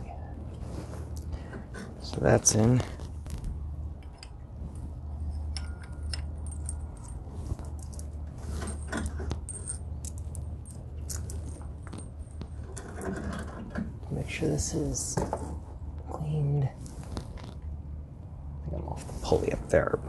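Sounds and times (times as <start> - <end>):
steady low hum: 0.0 - 20.0
metallic clinking and jingling: 5.1 - 13.2.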